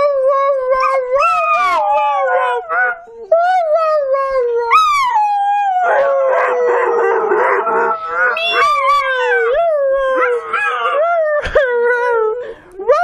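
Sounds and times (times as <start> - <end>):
dog howling: 0.8 - 3.1, 4.7 - 11.5.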